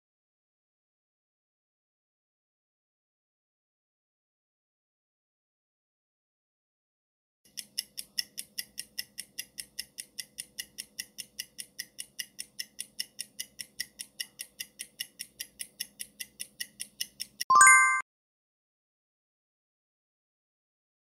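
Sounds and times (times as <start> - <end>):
clock ticking: 7.5 - 17.5.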